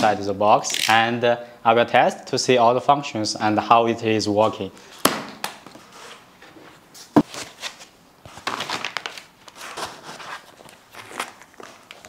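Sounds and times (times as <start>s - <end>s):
cardboard and foam rustling: 5.8s - 12.0s.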